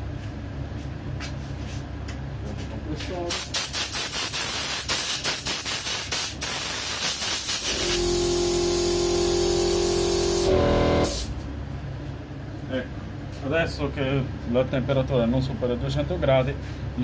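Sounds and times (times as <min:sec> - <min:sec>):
electric fan blowing air: 0:00.0 - 0:17.0
steady motor hum: 0:07.1 - 0:17.0.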